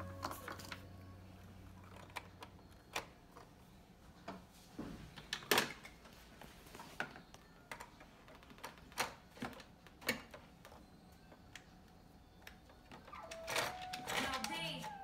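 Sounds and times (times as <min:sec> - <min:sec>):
plastic toys clicking and knocking: 0:01.8 - 0:03.5, 0:05.2 - 0:06.0, 0:07.0 - 0:10.8, 0:12.4 - 0:15.0.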